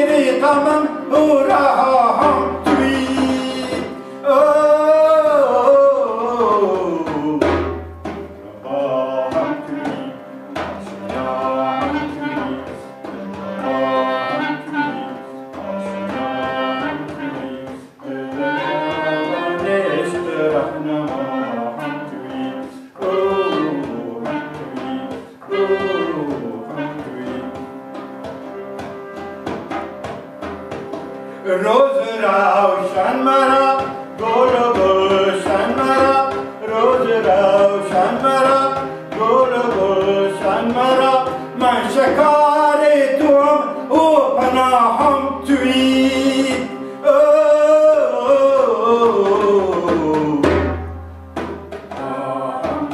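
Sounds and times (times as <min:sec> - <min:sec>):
clarinet melody: 0:00.0 - 0:52.9
frame drum hits: 0:06.8 - 0:08.5
harmonium drone: 0:23.4 - 0:47.8.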